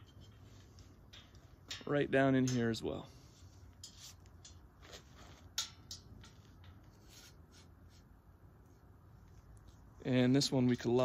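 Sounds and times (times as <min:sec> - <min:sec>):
clicks and knocks of metal frame: 0:00.0 - 0:07.4.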